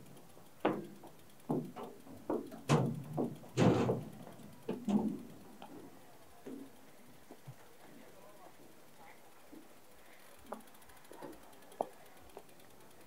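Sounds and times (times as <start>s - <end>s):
bike bumping over boards: 0.6s - 5.4s.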